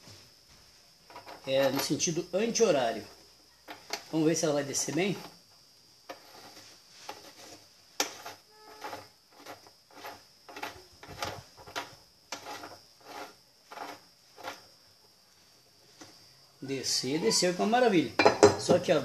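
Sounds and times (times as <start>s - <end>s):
metallic clicks and scrapes: 6.1s - 14.7s.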